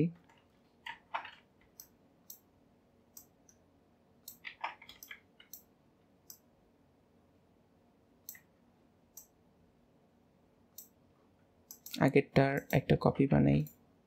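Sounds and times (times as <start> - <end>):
keyboard and mouse clicking: 0.8 - 2.5, 4.2 - 6.5, 10.7 - 11.0, 11.7 - 12.8.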